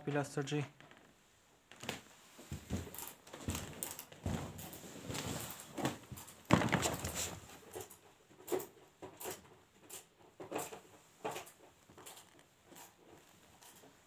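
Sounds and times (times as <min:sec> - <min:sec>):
footsteps on a hard floor: 0:01.7 - 0:07.6
scuffing noise: 0:01.9 - 0:07.5.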